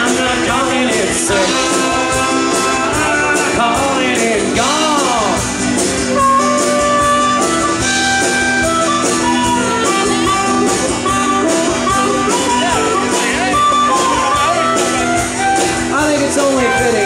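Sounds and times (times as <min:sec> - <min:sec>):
live band playing: 0:00.0 - 0:17.0.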